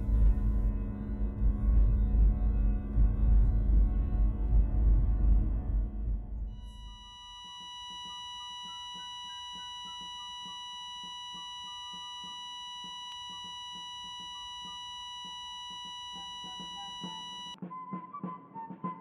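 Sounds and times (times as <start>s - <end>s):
faint stepping melody: 0.0s - 17.6s
high electronic tone: 6.5s - 17.6s.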